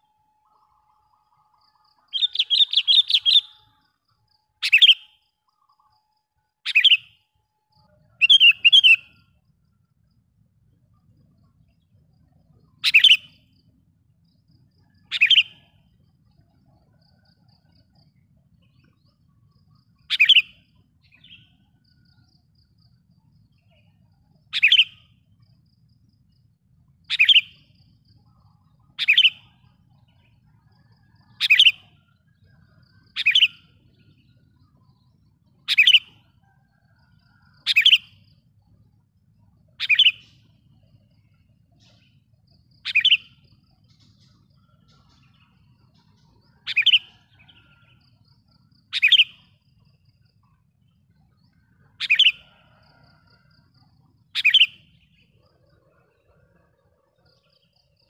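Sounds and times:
bulbul sharp calls: 0:02.1 - 0:03.7, 0:04.6 - 0:05.2, 0:06.6 - 0:07.2, 0:08.1 - 0:09.3, 0:12.8 - 0:13.4, 0:15.0 - 0:15.8, 0:20.0 - 0:21.5, 0:24.5 - 0:25.1, 0:27.1 - 0:27.7, 0:28.9 - 0:29.6, 0:31.0 - 0:32.0, 0:33.0 - 0:33.8, 0:35.6 - 0:36.6, 0:37.6 - 0:38.2, 0:39.8 - 0:40.5, 0:42.8 - 0:45.4, 0:46.2 - 0:47.8, 0:48.8 - 0:49.6, 0:51.9 - 0:52.9, 0:54.3 - 0:55.4.

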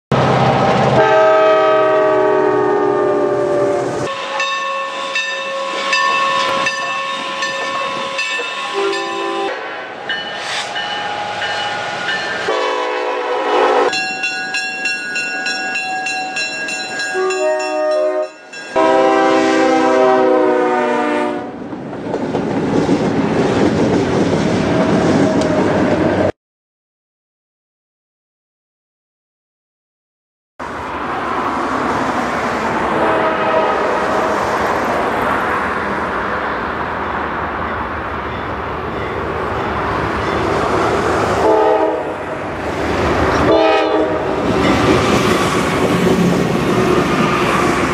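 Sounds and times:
passing freight train rumble: 0:00.1 - 0:26.3, 0:30.6 - 0:47.9
locomotive air horns: 0:00.9 - 0:11.5, 0:12.4 - 0:14.0, 0:17.2 - 0:21.6, 0:32.8 - 0:34.3, 0:41.4 - 0:42.4, 0:43.4 - 0:44.5.

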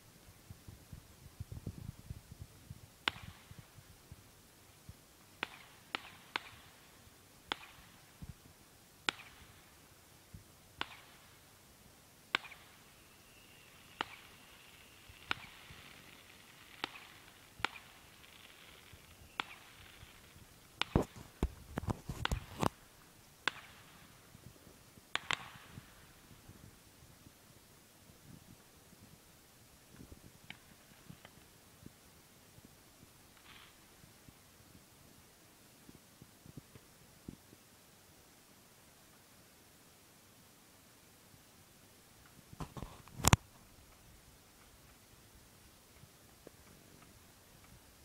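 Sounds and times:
distant fireworks bangs: 0:12.3 - 0:22.8.

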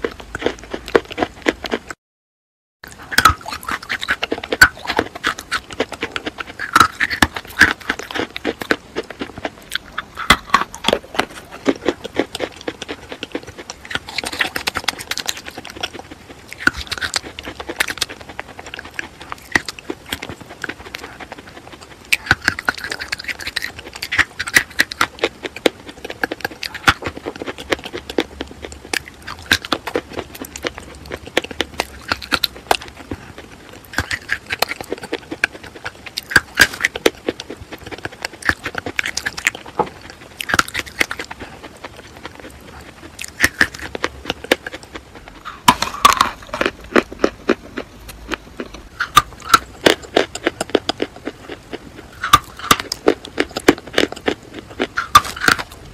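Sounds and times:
chalk being bitten and chewed: 0:00.0 - 0:02.0, 0:02.9 - 0:55.9.

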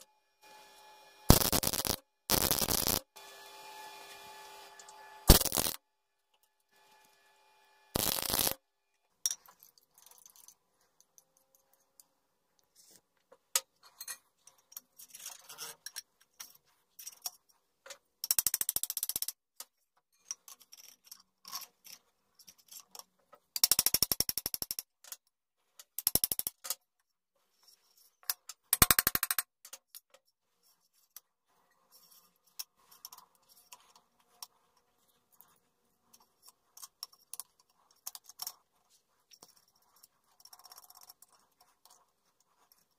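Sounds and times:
metal parts clinking: 0:05.3 - 0:05.8, 0:08.0 - 0:08.6.

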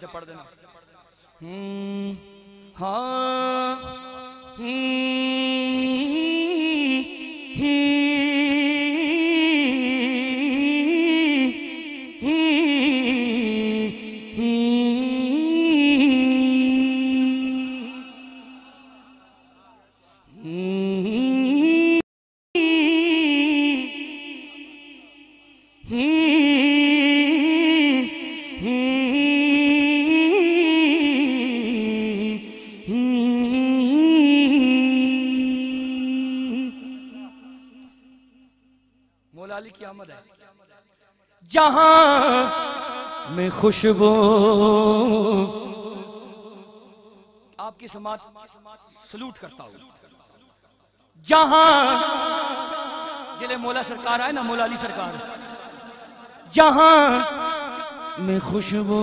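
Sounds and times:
man singing into microphone: 0:00.0 - 0:22.0, 0:22.6 - 0:25.2, 0:25.8 - 0:38.3, 0:41.5 - 0:46.7, 0:51.2 - 0:59.0
man singing unaccompanied: 0:02.8 - 0:19.0, 0:41.5 - 0:46.3, 0:56.4 - 0:59.0.

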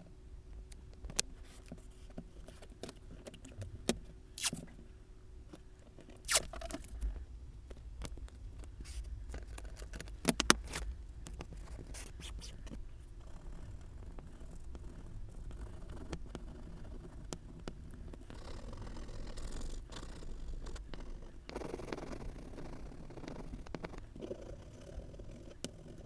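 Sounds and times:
masking tape scrapes and rips: 0:04.4 - 0:04.6, 0:06.2 - 0:06.8.

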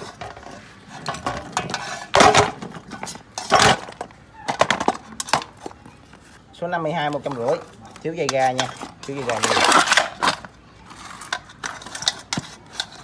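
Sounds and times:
metal parts clattering together: 0:08.3 - 0:13.0.

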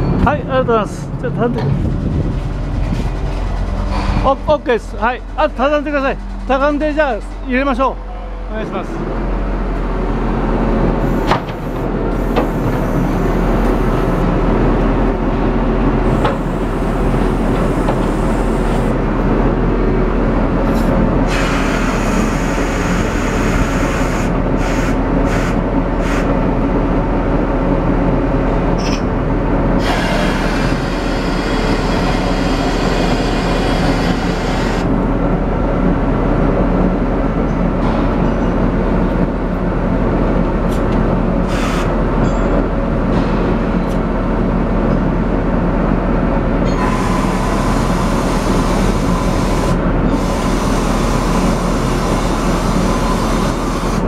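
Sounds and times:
rotary snowplow droning: 0:26.6 - 0:37.4.

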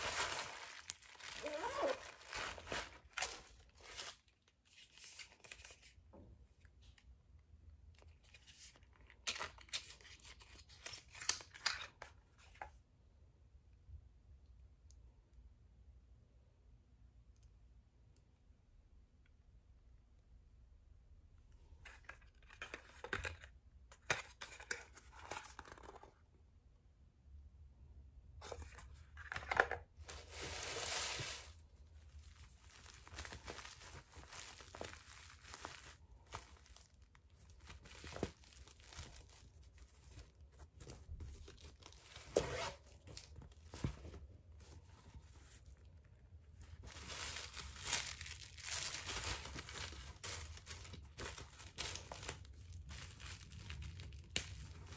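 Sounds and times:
paper rustling and crinkling: 0:00.0 - 0:06.0, 0:28.4 - 0:45.9, 0:46.6 - 0:54.9.

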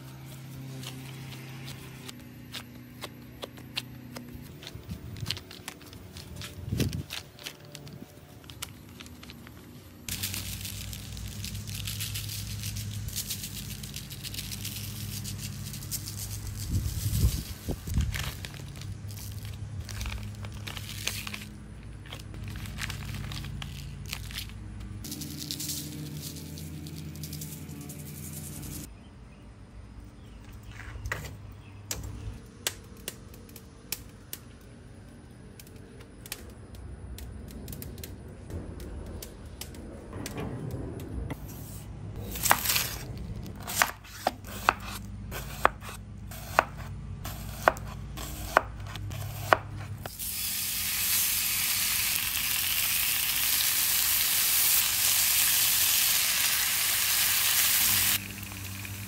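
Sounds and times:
knife chopping on cutting board: 0:43.6 - 0:49.9
bacon sizzling: 0:50.1 - 0:59.0.

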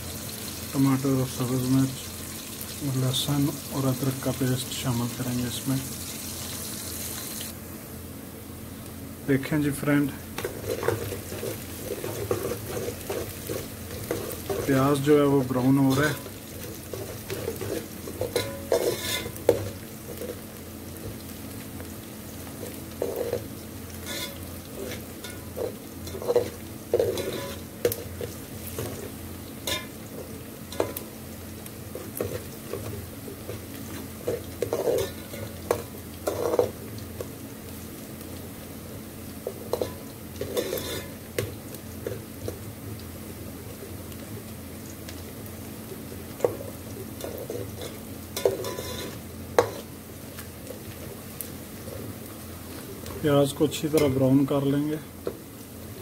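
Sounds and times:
onions sizzling in oil: 0:00.0 - 0:56.0
spoon scraping and knocking pot: 0:16.9 - 0:20.4, 0:24.0 - 0:28.0, 0:33.9 - 0:36.7, 0:39.7 - 0:41.1, 0:47.2 - 0:49.9.

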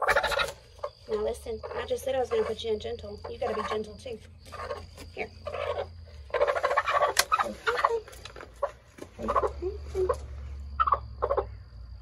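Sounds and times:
hen giving short calls: 0:04.5 - 0:11.5.

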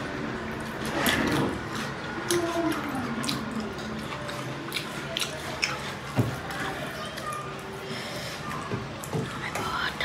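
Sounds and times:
mouths chewing: 0:00.5 - 0:10.0
wet smacks and clicks: 0:00.6 - 0:06.5
fingers squishing food: 0:00.6 - 0:07.8.

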